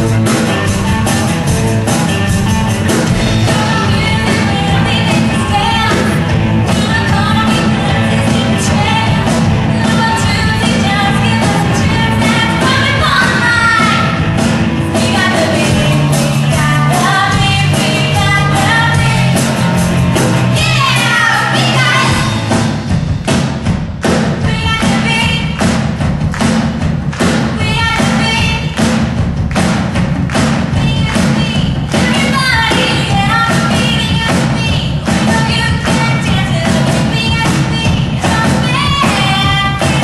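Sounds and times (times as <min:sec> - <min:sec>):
live rock band playing: 0:00.0 - 0:40.0
lead vocal singing: 0:20.4 - 0:22.5.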